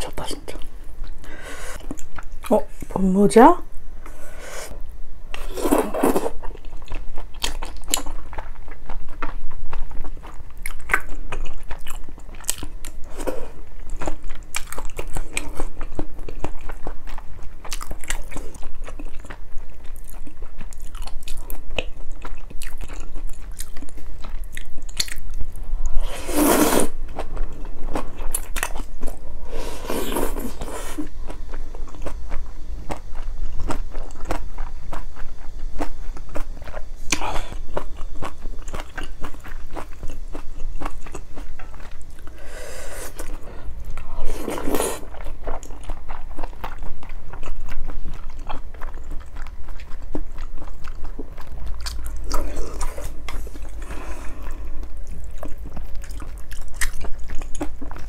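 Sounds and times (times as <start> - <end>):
wet chewing of noodles: 0.5 - 2.5, 4.1 - 58.0
slurping noodles and broth: 5.4 - 6.4, 26.0 - 27.0, 29.4 - 31.1, 42.3 - 45.2.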